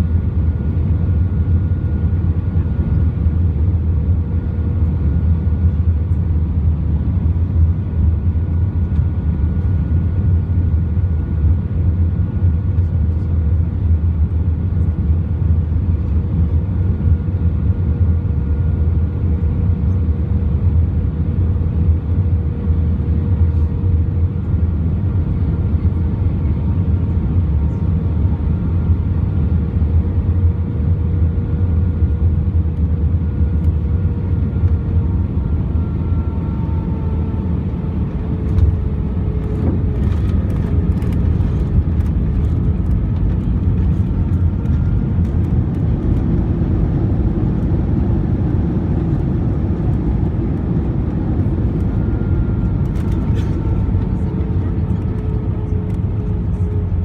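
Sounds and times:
jet engines and airflow rumble: 0.0 - 57.0
runway rumble: 32.0 - 57.0.

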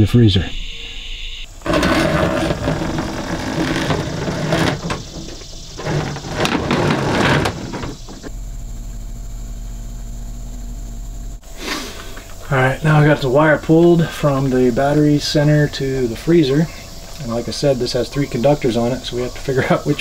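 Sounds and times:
steady low hum: 0.0 - 20.0
cable scraping along wood: 1.6 - 8.3.

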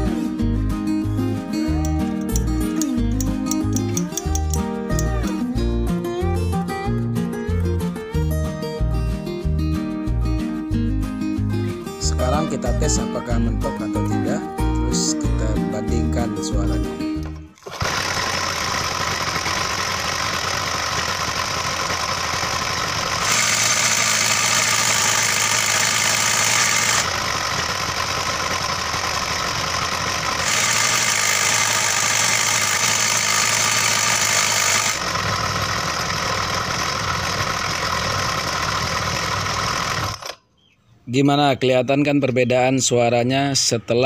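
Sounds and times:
two-stroke engine idling: 17.2 - 40.4.

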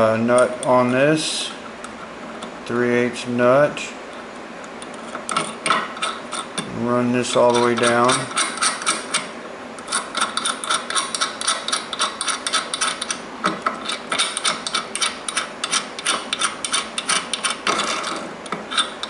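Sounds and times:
nut rattling on bolt threads: 9.9 - 19.0.

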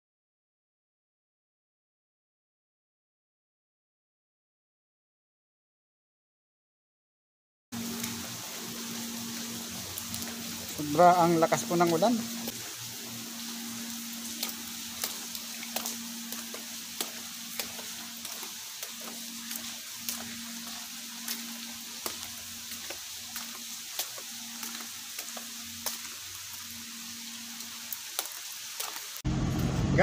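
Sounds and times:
raindrops ticking close by: 7.8 - 29.2
heavy rain hissing: 7.8 - 30.0.

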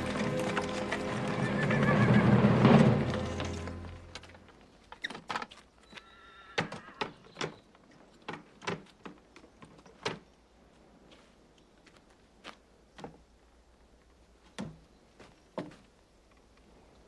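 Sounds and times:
faint horse whinny: 1.3 - 2.6, 5.9 - 7.2.

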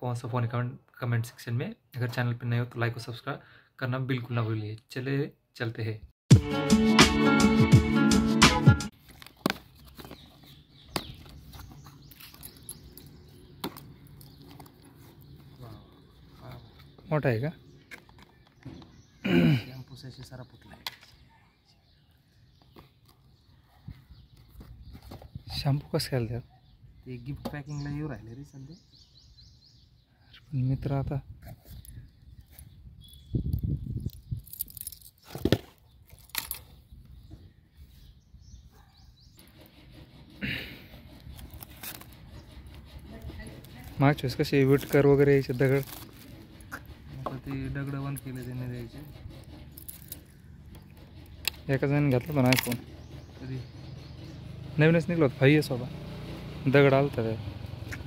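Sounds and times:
keys jangling: 34.1 - 35.2, 49.6 - 50.4
cardboard box rustling and scraping: 44.7 - 47.5.

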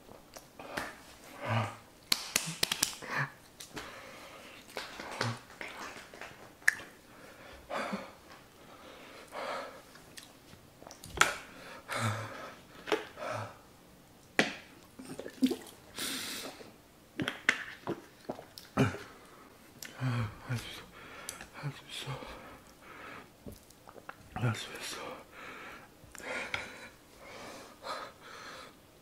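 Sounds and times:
man gasping and breathing heavily: 0.6 - 1.9, 11.4 - 13.6, 19.9 - 23.3
lip smacks: 4.6 - 7.0.

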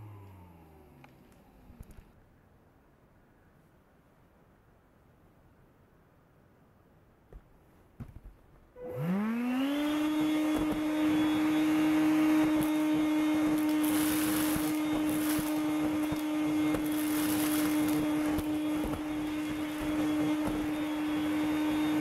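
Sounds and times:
vacuum cleaner motor whining: 0.0 - 2.0, 8.8 - 22.0.

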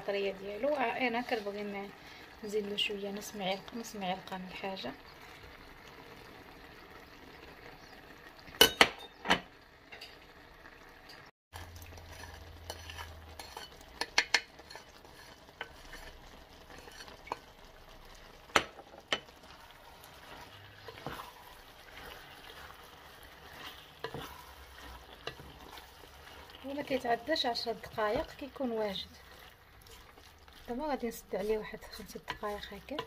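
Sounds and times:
meat sizzling: 0.0 - 33.0
spatula scraping plate: 11.9 - 17.4, 20.1 - 22.7, 23.3 - 26.0.

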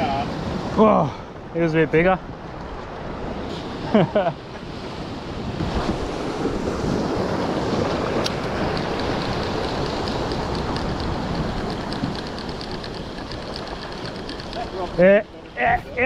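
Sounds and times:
surf washing over rocks: 0.0 - 16.0
wind on microphone: 0.0 - 16.0
fishing reel ticking: 8.3 - 15.0.

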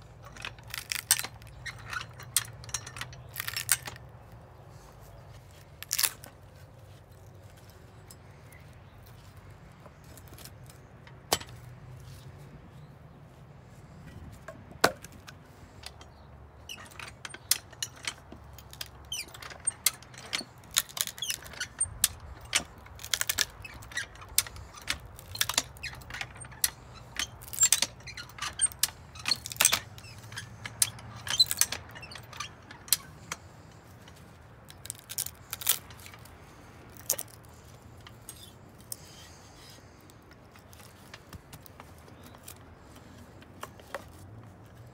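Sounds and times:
jack pins clacking on steel bar: 0.2 - 4.2, 10.3 - 11.7, 14.0 - 36.3.

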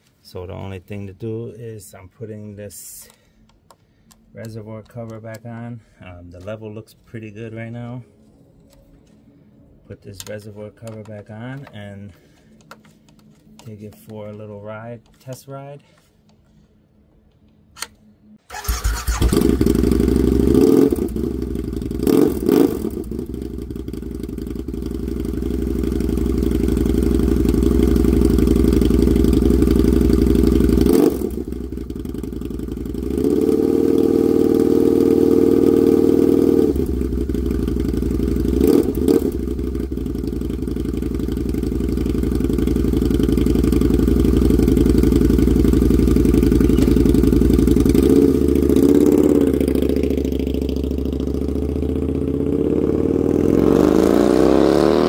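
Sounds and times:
motorcycle engine starting and revving: 17.8 - 55.0.

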